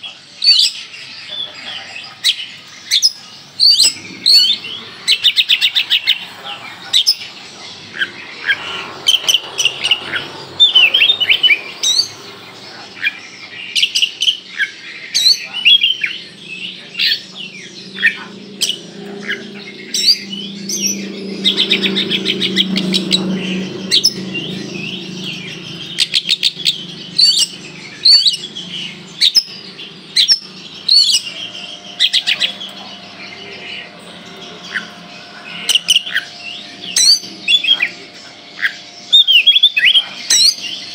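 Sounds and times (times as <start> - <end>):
bird singing loud sharp chirps: 2.2 - 40.9
low hum: 15.4 - 39.2.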